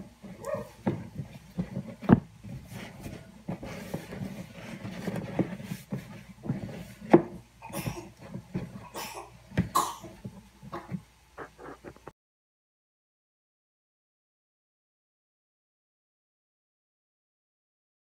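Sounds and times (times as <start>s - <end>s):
hands kneading dough in a bowl: 0.0s - 12.1s.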